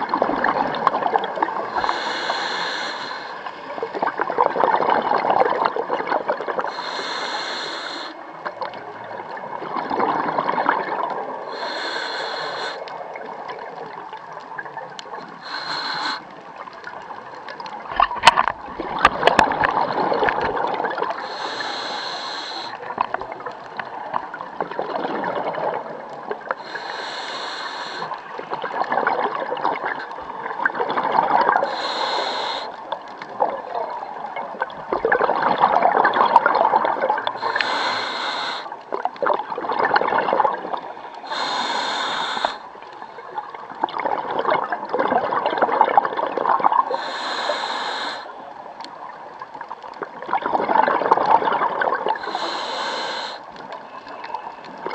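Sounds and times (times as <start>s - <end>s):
bubbling exhaled air: 0.0s - 13.9s, 17.8s - 23.6s, 24.4s - 32.7s, 34.6s - 42.6s, 43.4s - 48.4s, 50.0s - 54.9s
regulator breathing hiss: 1.8s - 3.6s, 6.7s - 8.2s, 11.5s - 12.9s, 15.4s - 16.3s, 21.2s - 22.9s, 26.6s - 28.3s, 31.6s - 32.8s, 37.4s - 38.8s, 41.2s - 42.7s, 46.9s - 48.4s, 52.2s - 53.5s.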